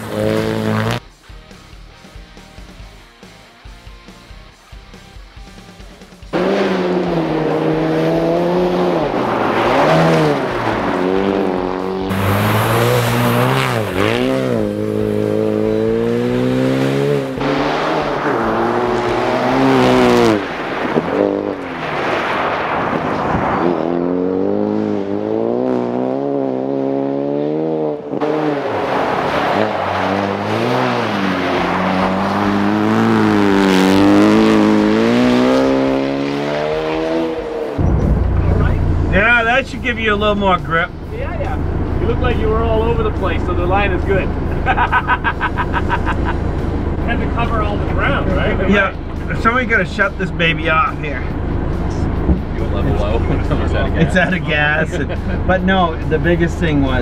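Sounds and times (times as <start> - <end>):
rally car engine revving: 0.0 - 1.1, 6.3 - 57.0.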